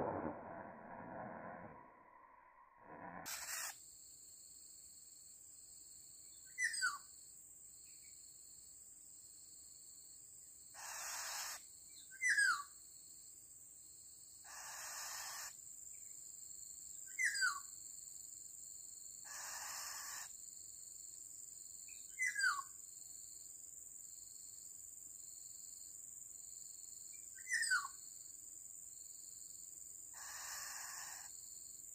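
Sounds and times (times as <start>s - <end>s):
high insect drone: 0.0s - 12.0s, 12.8s - 22.1s, 22.8s - 31.9s.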